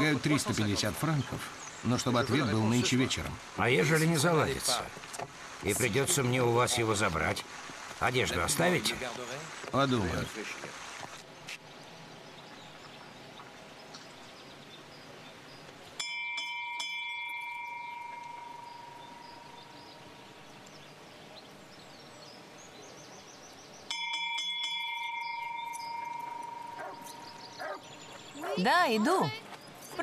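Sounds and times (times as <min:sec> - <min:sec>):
small bell ringing: 0:16.0 - 0:19.4, 0:23.9 - 0:27.5.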